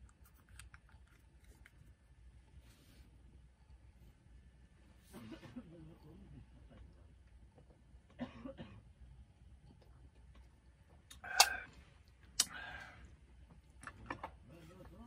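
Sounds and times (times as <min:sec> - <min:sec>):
person coughing: 0:08.2 - 0:08.8.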